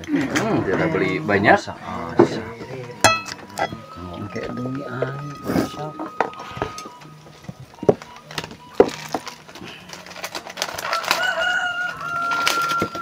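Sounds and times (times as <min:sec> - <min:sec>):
rooster crowing: 0:10.8 - 0:13.0.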